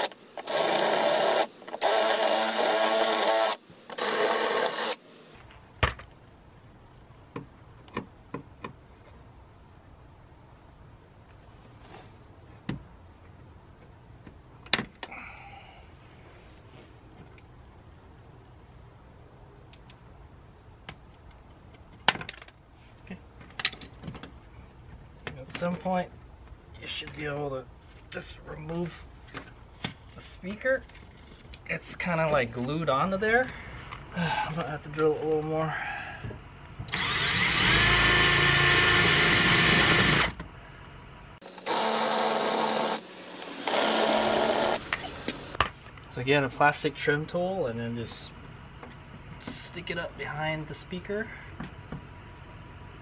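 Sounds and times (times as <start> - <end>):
electric drill drilling rivets: 0.0 - 5.3, 36.9 - 40.4, 41.4 - 45.6.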